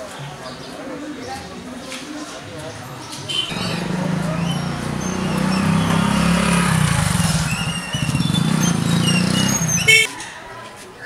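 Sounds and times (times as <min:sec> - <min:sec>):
motorcycle engine running slowly: 0:03.5 - 0:10.1.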